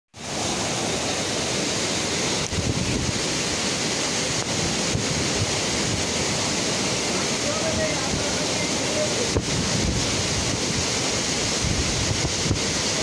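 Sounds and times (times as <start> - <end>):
heavy rain pouring: 0.2 - 13.0
wind gusts buffeting microphone: 2.3 - 3.6, 4.2 - 13.0.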